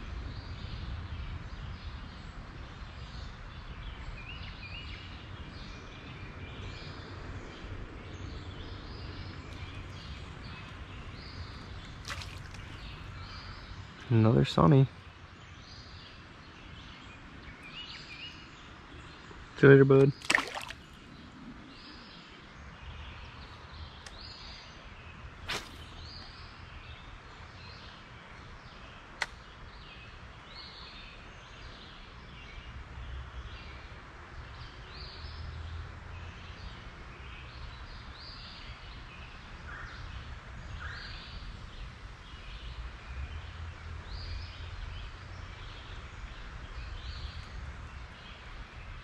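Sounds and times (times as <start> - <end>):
small birds chirping: 0.1 - 49.0
fish splashing into water: 11.8 - 13.1, 20.0 - 21.0, 25.4 - 26.0
sharp clicks: 29.2 - 29.4.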